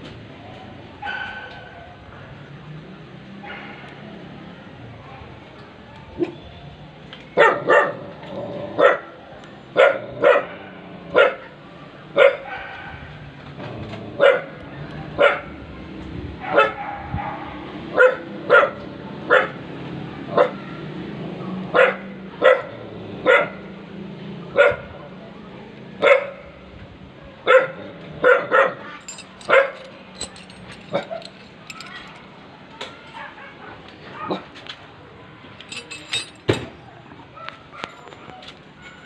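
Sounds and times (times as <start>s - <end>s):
dog barking: 1.0s - 1.9s, 3.4s - 3.9s, 7.4s - 8.1s, 8.8s - 9.1s, 9.8s - 11.6s, 12.2s - 13.1s, 14.2s - 14.6s, 15.2s - 15.6s, 16.4s - 19.6s, 20.3s - 20.6s, 21.7s - 23.7s, 24.5s - 24.9s, 26.0s - 26.5s, 27.4s - 32.1s, 33.0s - 34.5s, 37.4s - 39.0s.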